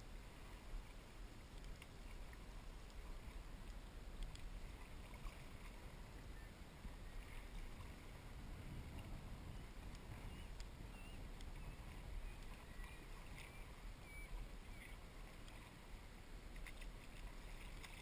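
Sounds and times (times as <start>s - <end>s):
paddle strokes in water: 0.0s - 18.0s
water lapping at board: 0.2s - 18.0s
small clicks: 1.5s - 2.0s, 3.6s - 4.5s, 9.9s - 10.7s.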